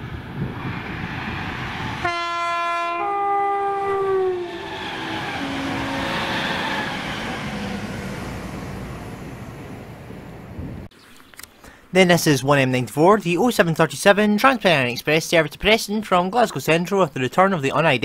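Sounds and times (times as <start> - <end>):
train rushing past: 0.0 - 10.9
two-note train horn: 2.0 - 6.5.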